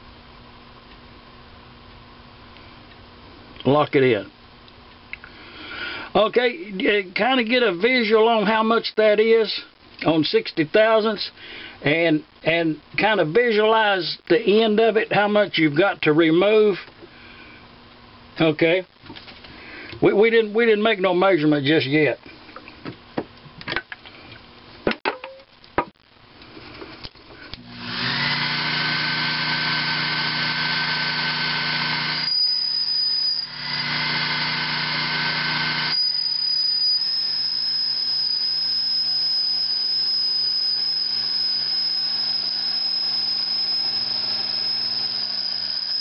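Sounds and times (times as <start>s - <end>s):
lathe cutting aluminum with whine: 27.7s - 46.0s.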